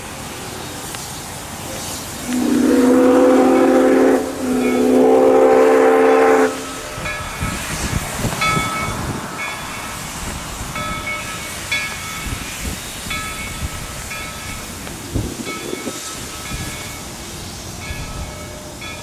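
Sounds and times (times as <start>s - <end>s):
steam hiss: 0.0s - 19.0s
steam whistle blast: 2.2s - 7.0s
locomotive bell ringing: 2.3s - 7.8s, 8.4s - 19.0s.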